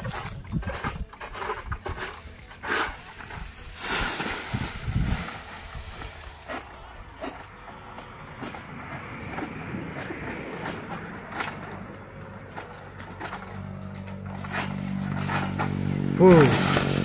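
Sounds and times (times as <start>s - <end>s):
palm fronds rustling and scraping: 0.0s - 17.0s
frond falling with heavy thump: 3.2s - 6.8s.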